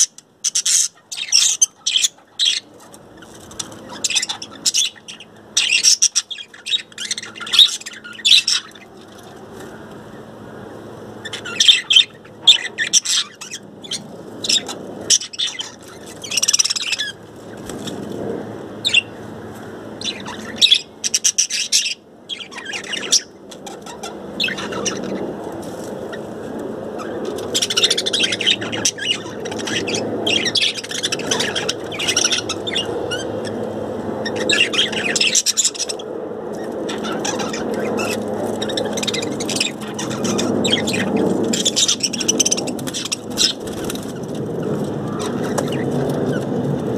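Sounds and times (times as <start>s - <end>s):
budgerigars chattering: 0.0s - 8.9s, 11.2s - 17.6s, 20.0s - 25.2s, 27.0s - 33.6s, 34.2s - 44.4s
steady low background noise: 0.0s - 46.9s.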